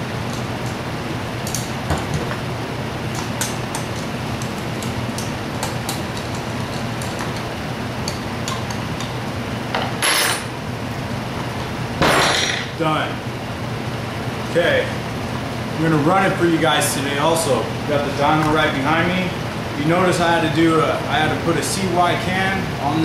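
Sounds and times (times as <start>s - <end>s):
low shop hum: 0.0s - 23.0s.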